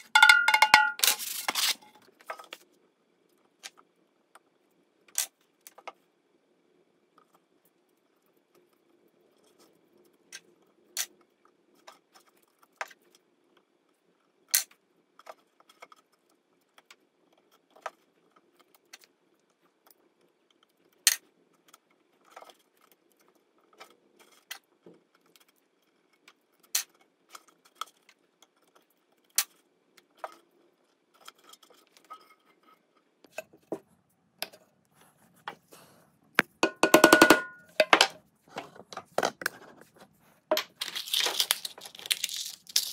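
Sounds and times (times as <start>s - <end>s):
mallet tapping metal blade: 36.6s - 37.8s.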